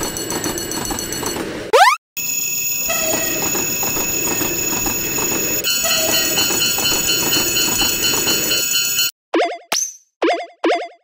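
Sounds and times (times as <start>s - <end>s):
crossing warning bells ringing: 2.2s - 9.1s
train rumble and wheel clatter: 3.0s - 8.8s.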